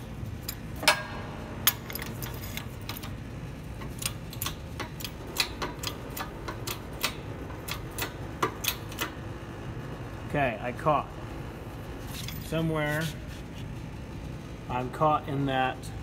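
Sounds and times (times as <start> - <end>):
steady low hum: 0.0 - 16.0
metallic clicks and ticks: 3.8 - 9.2.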